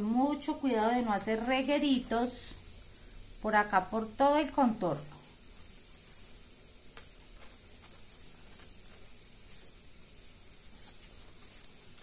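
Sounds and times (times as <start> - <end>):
hands handling foam sheet: 5.1 - 12.0
soft ticks and rustles: 5.1 - 12.0.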